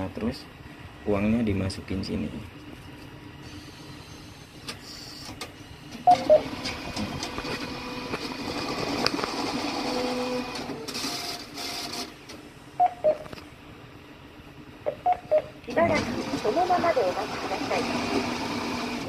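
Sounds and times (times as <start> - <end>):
banknote counter whirring: 6.0 - 12.2, 15.1 - 19.0
short beeps: 12.8 - 13.3.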